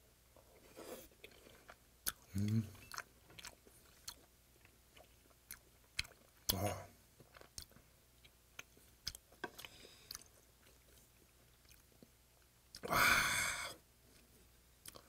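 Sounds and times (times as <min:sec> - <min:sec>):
chewing with wet clicks: 0:01.2 - 0:06.6, 0:07.2 - 0:12.9, 0:14.2 - 0:15.0.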